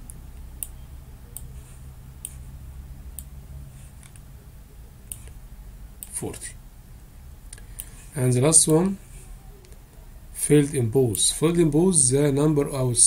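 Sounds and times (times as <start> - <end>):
computer mouse clicks: 0.0 - 2.5, 5.0 - 5.4
steady low hum: 0.0 - 13.0.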